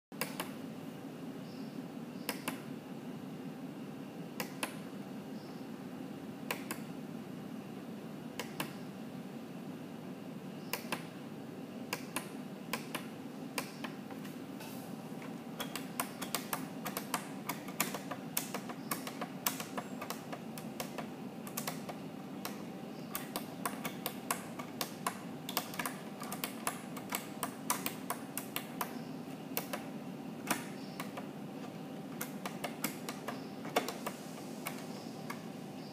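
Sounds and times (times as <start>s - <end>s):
steady low hum: 0.2s - 35.9s
keyboard typing: 15.2s - 35.5s.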